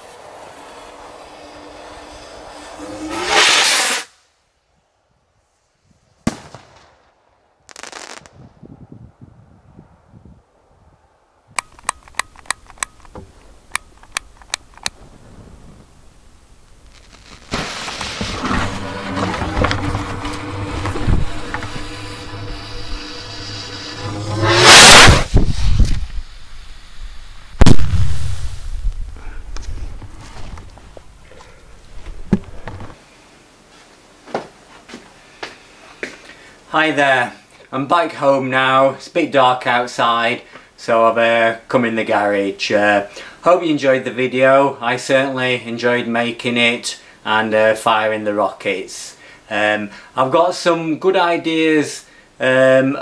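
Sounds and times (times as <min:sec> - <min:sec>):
crackling firework bangs: 0:00.0 - 0:04.1, 0:06.2 - 0:08.5, 0:14.8 - 0:29.2
firework rocket whoosh: 0:00.0 - 0:04.4, 0:07.7 - 0:08.7, 0:14.9 - 0:30.0
firework bang: 0:01.3 - 0:04.1, 0:06.2 - 0:07.1, 0:07.7 - 0:08.6, 0:14.9 - 0:16.1, 0:16.9 - 0:26.3, 0:27.5 - 0:29.2.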